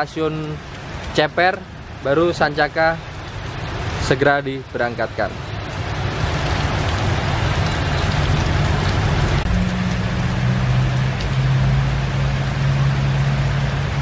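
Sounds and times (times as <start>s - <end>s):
heavy rain on road: 0.0s - 14.0s
low engine hum: 5.4s - 14.0s.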